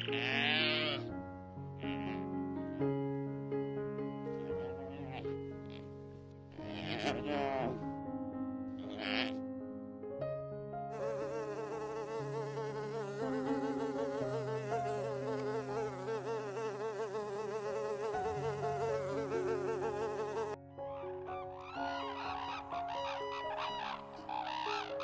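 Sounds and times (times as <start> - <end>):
bees buzzing: 10.9 - 20.6.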